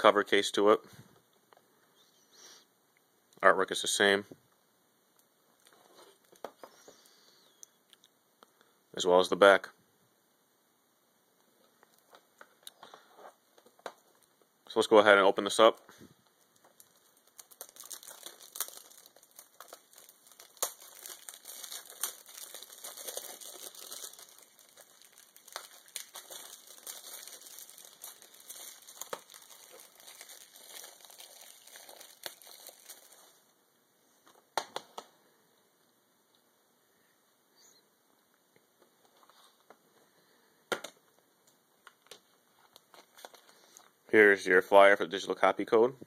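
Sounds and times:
plastic shrink wrap crinkling: 11.6 - 33.5, 41.4 - 44.0.

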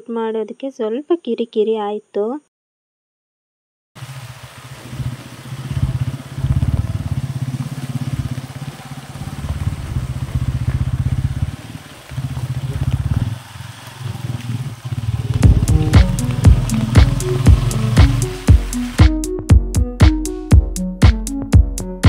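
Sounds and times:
motorcycle engine running: 4.0 - 19.9.

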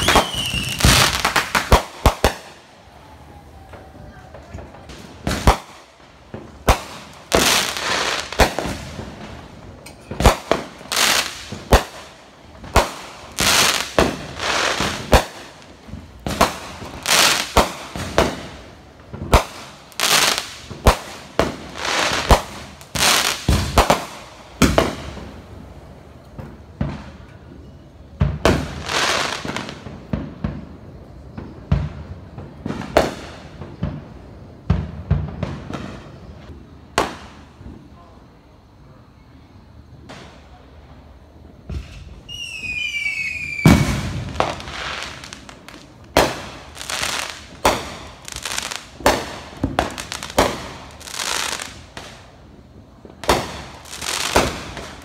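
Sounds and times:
fireworks hissing: 0.0 - 27.3, 40.0 - 55.0
fireworks banging: 0.0 - 38.1, 41.4 - 55.0.

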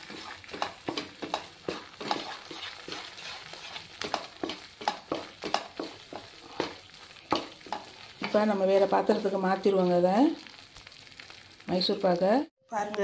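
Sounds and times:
wooden spatula scraping a pan: 0.0 - 9.9
light frying sizzle: 0.0 - 13.0.

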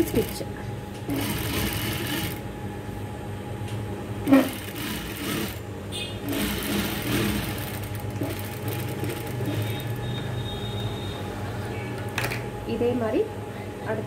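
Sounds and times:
sewing machine running: 0.0 - 0.4, 1.1 - 2.4, 4.2 - 5.6, 6.2 - 10.1.

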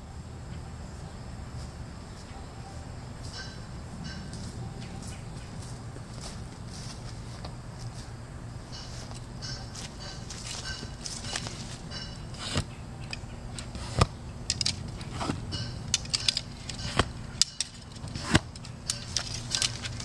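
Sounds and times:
steady low hum: 0.0 - 20.0
sharp clicks and knocks: 8.8 - 20.0.

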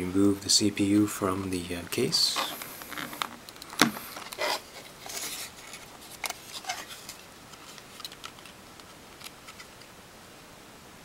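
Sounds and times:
plastic packaging snapping and crinkling: 2.3 - 9.9.

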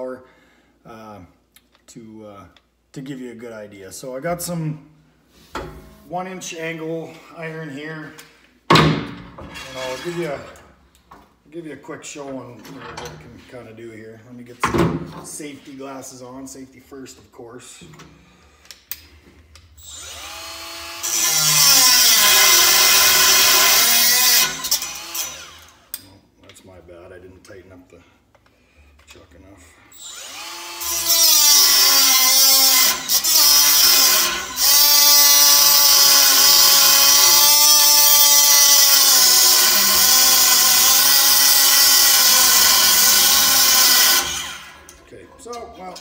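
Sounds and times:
die grinder cutting steel: 9.5 - 10.4, 19.8 - 25.8, 30.0 - 44.9.

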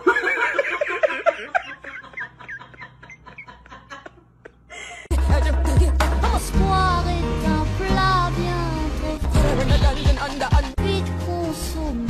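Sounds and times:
person laughing: 0.0 - 5.1
loud music: 5.1 - 12.0.

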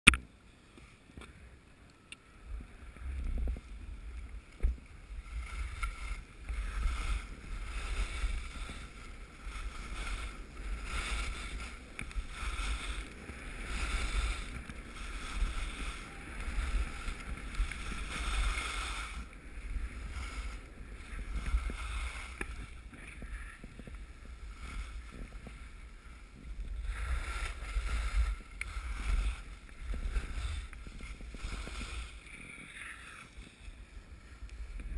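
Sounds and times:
wind buffeting microphone: 2.4 - 33.1
skis swishing over snow: 2.7 - 34.9.

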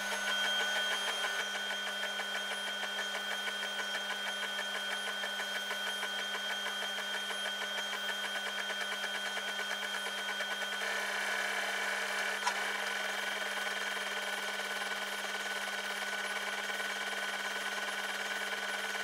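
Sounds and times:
steady machine hum: 0.0 - 7.7
laser cutter motors buzzing: 0.0 - 19.0.

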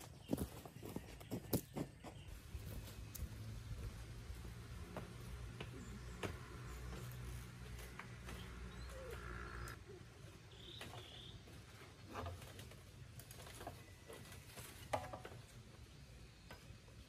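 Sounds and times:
faint bird chirps: 8.4 - 11.4.

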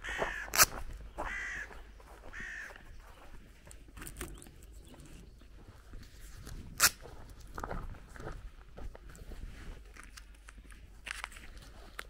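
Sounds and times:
crow cawing: 0.0 - 2.9.

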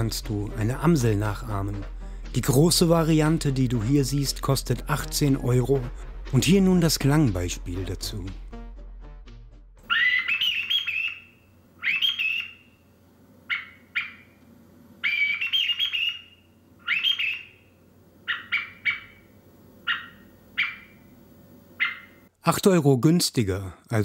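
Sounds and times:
bird call whistle: 9.8 - 14.4, 15.0 - 19.3, 19.9 - 21.0, 21.8 - 22.2.

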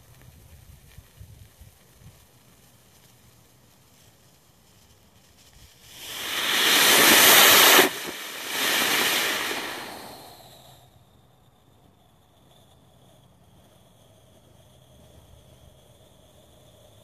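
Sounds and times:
rocket engine rushing hiss: 5.7 - 10.7.

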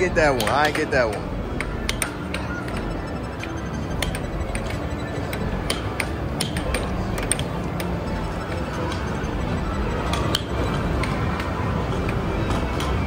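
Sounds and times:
busy arcade din: 0.0 - 13.0
air hockey puck clacking: 0.3 - 2.8, 5.6 - 7.9.

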